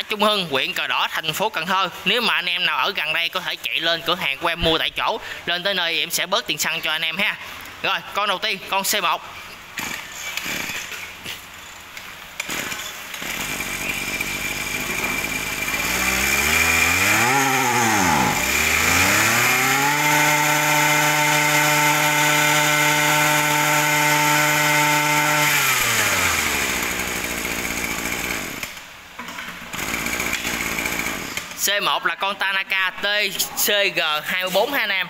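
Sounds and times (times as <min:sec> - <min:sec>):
brush-cutter engine pull-started: 0:09.8 - 0:11.4, 0:12.4 - 0:28.8, 0:29.7 - 0:31.6.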